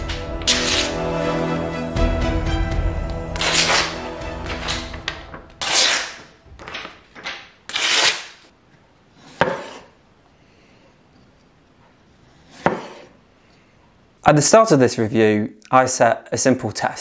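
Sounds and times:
knife slicing paper: 3.4 - 4.9, 5.6 - 8.4.

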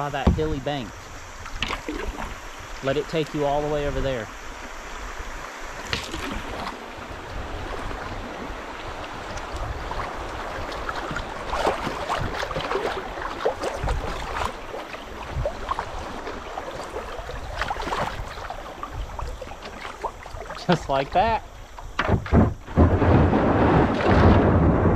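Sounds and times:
river water rushing and gurgling: 0.0 - 24.9
small splashes: 5.8 - 6.9, 7.6 - 22.8.

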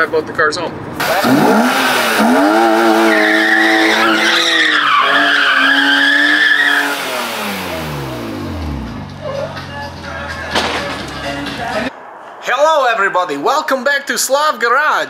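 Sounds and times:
car engine revving high: 1.0 - 9.1
tyres squealing on concrete: 2.2 - 7.2.

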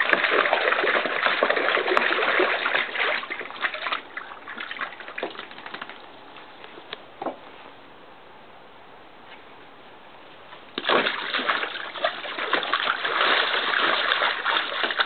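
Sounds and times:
dog splashing in water: 0.0 - 6.1, 10.8 - 15.0
water dripping: 0.0 - 6.2, 10.8 - 15.0.

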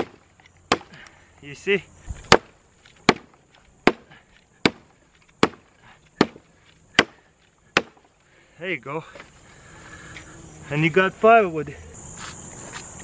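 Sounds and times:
hatchet chopping wood: 0.0 - 1.1, 2.2 - 8.1.

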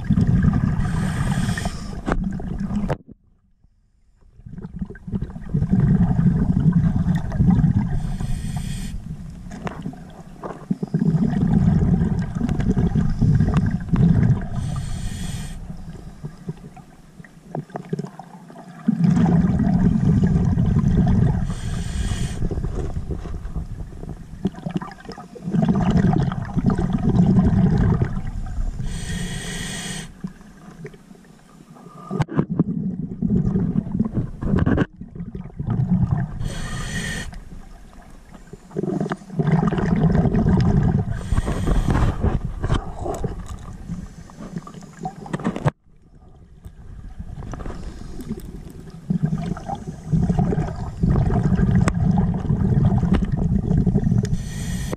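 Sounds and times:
exhaled bubbles underwater: 0.0 - 3.2, 4.2 - 31.2, 31.9 - 54.9
regulator inhale hiss: 0.8 - 2.1, 7.9 - 9.2, 14.5 - 16.3, 21.4 - 22.6, 28.4 - 30.4, 36.4 - 37.5, 41.1 - 42.3, 43.9 - 45.1, 47.6 - 48.4, 54.2 - 54.9.

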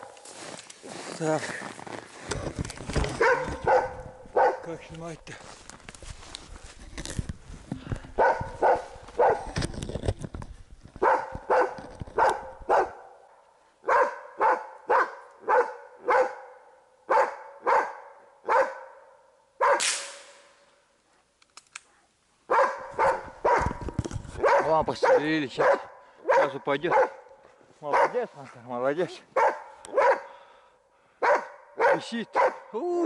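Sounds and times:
dog barking: 3.2 - 4.7, 8.2 - 9.6, 11.0 - 13.2, 13.8 - 19.8, 22.5 - 23.8, 24.4 - 28.3, 29.1 - 30.3, 31.2 - 32.7
gunshot: 19.8 - 20.6.

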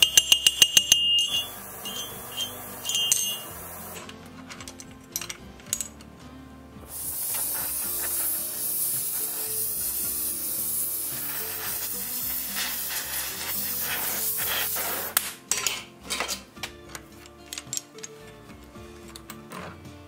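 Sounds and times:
gas torch hissing: 0.0 - 4.4, 6.8 - 15.5
metallic clicks: 0.0 - 6.1, 15.2 - 18.2
soft background music: 0.0 - 20.0.

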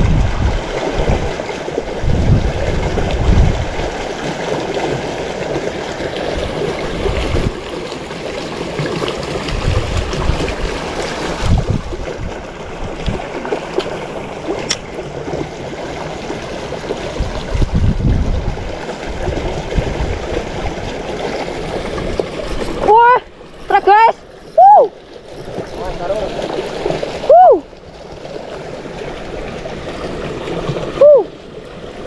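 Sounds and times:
river rushing: 0.2 - 11.5, 18.6 - 32.0.

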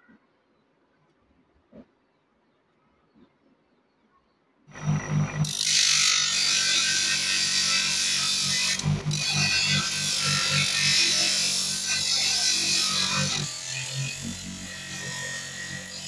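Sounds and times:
bench grinder motor humming: 4.7 - 16.0
metal grinding on abrasive disc: 4.7 - 16.0.

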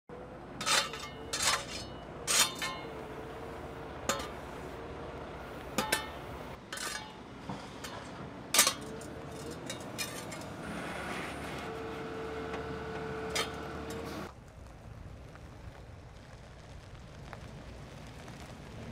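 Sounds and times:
loader engine humming: 0.1 - 14.4
shovel scraping asphalt chunks: 0.6 - 14.3.

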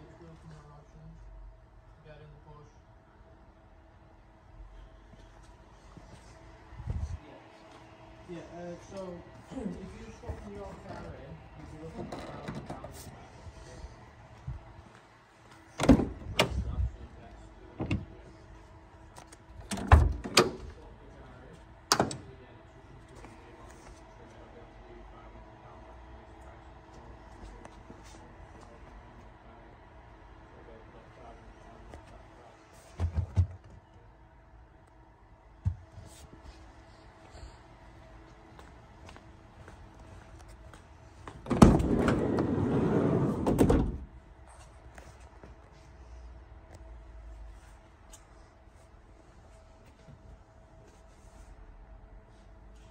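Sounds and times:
heavy van door clunks: 15.8 - 16.7, 41.4 - 44.1.

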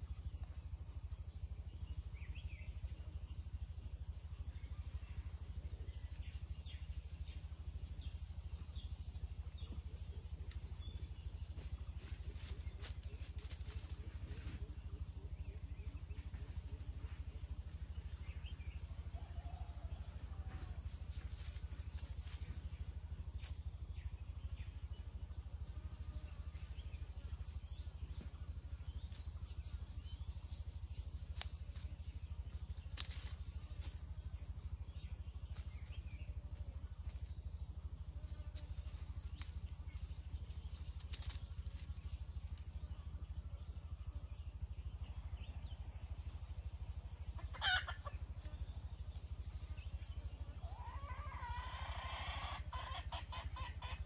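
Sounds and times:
steady low hum: 0.0 - 54.0
jungle fowl calling: 47.4 - 48.2, 50.6 - 54.0.

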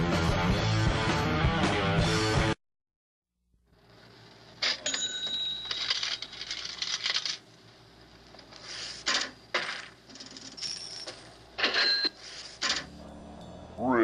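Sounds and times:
sharp clinks and scraping: 9.0 - 13.8.

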